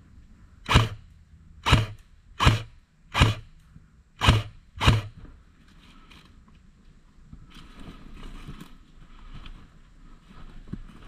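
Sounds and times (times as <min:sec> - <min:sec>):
airsoft rifle shots: 0:00.7 - 0:03.5, 0:04.2 - 0:05.2.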